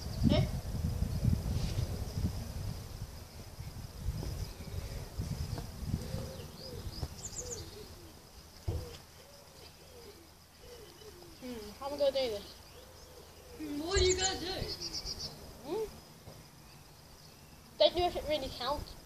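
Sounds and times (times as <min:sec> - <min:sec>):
wind buffeting microphone: 0:00.0 - 0:09.0, 0:13.6 - 0:15.6
bird chirping: 0:03.2 - 0:19.0
thump: 0:08.6 - 0:09.0.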